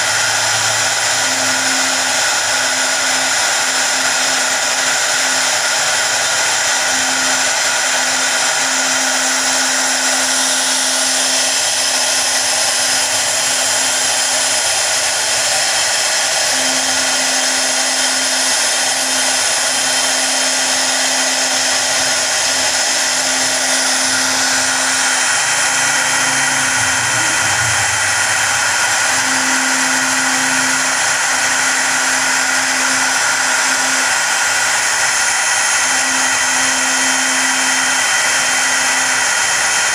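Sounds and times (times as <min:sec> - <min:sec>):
cnc router spindle whining: 0:00.0 - 0:39.9
low hum: 0:07.2 - 0:34.9.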